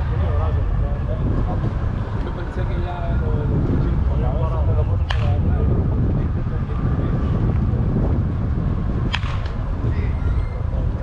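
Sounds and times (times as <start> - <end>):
wind rumble on microphone: 0.0 - 11.0
bat cracking against ball: 5.0 - 5.4, 9.0 - 9.7.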